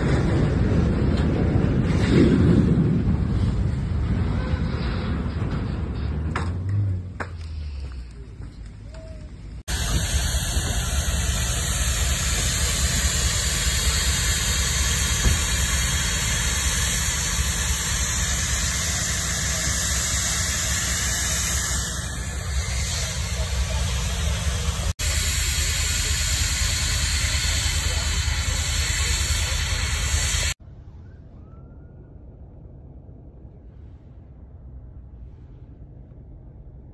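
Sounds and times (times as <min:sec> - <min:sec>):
steady rushing hiss: 0:09.6 - 0:30.6.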